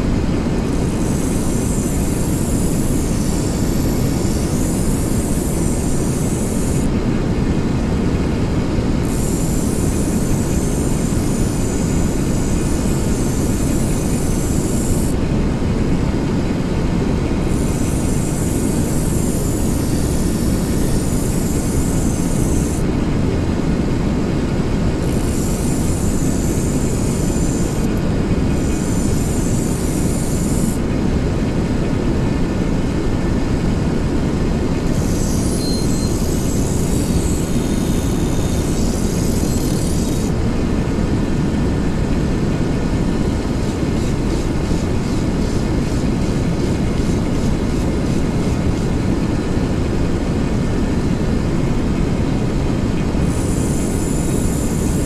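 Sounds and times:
portable generator running: 0.0s - 55.0s
high hiss: 0.6s - 7.0s, 9.0s - 15.2s, 17.5s - 22.9s, 25.0s - 28.0s, 28.6s - 30.8s, 34.9s - 40.4s, 53.2s - 55.0s.

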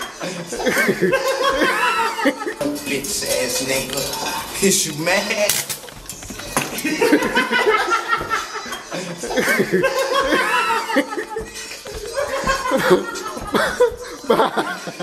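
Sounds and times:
men laughing: 0.0s - 4.6s, 5.8s - 15.0s.

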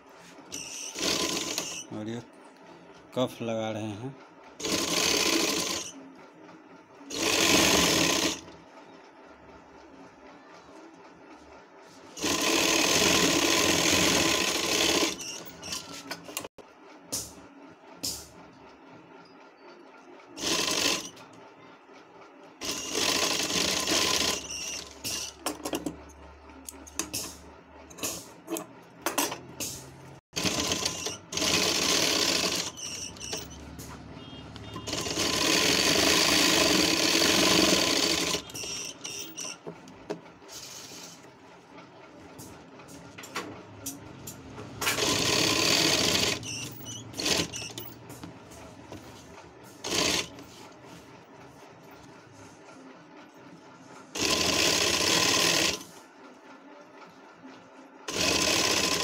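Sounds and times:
sewing machine stitching: 0.5s - 2.3s, 4.6s - 6.1s, 6.9s - 8.6s, 12.1s - 16.6s, 20.2s - 21.4s, 22.6s - 56.0s, 58.0s - 59.0s.

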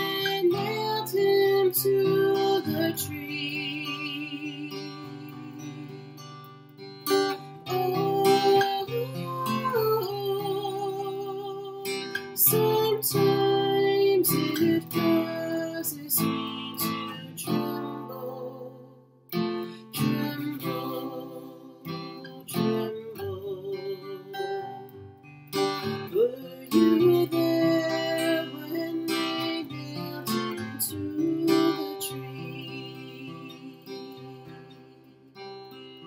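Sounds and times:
woman singing a hymn: 0.0s - 6.0s, 7.7s - 18.9s, 19.9s - 24.8s, 26.1s - 35.1s
acoustic guitar strumming: 0.0s - 36.0s.

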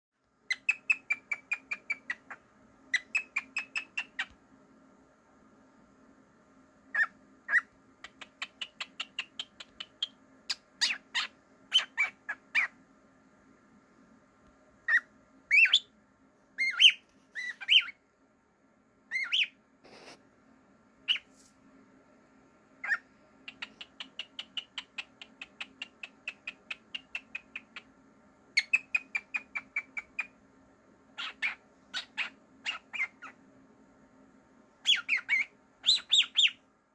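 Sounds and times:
cockatiel chirping: 0.5s - 4.4s, 6.9s - 12.8s, 14.9s - 15.9s, 16.6s - 18.0s, 19.1s - 20.2s, 21.0s - 21.3s, 22.8s - 27.9s, 28.6s - 30.4s, 31.2s - 33.4s, 34.8s - 36.6s.

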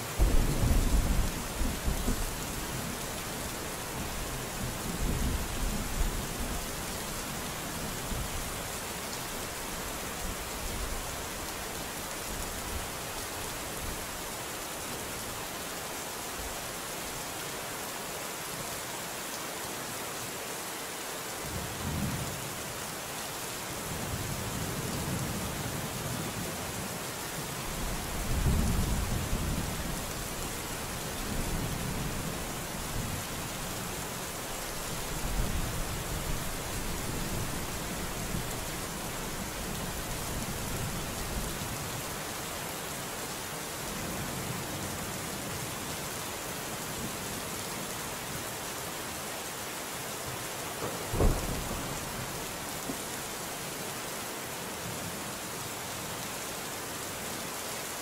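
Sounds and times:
heavy rain falling: 0.0s - 58.0s
thunder rumbling: 0.2s - 2.4s, 51.1s - 52.2s.

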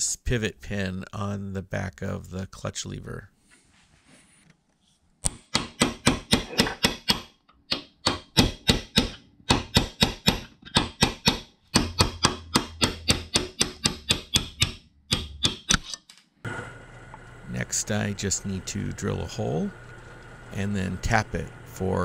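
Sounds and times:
hammer tapping steel punch: 5.3s - 16.0s.

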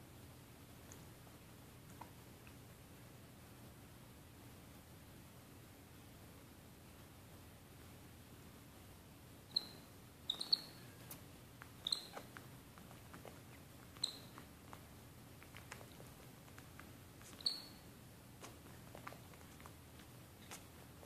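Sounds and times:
high-pitched animal squeaks: 9.5s - 10.9s, 11.8s - 12.4s, 14.0s - 14.4s, 17.3s - 17.8s.

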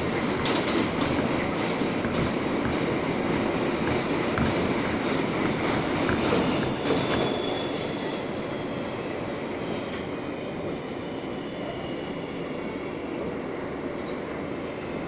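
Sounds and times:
wheels rumbling on rail: 0.0s - 9.3s.

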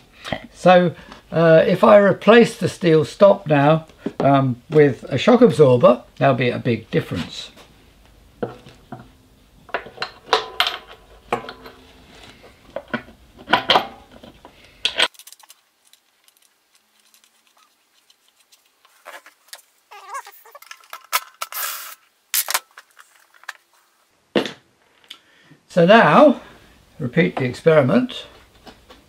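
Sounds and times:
small metal parts clinking: 14.8s - 17.6s.

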